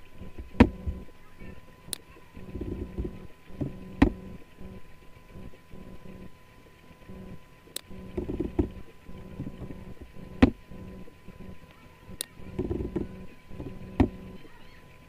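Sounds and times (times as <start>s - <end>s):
faint electrical hum: 0.0s - 15.0s
soft low knocks: 2.4s - 6.3s, 7.0s - 14.3s.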